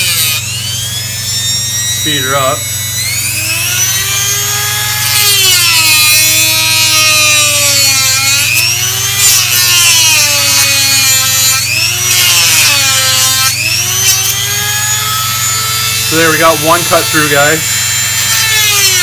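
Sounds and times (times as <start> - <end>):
rotary tool cutting acrylic: 0.0 - 19.0.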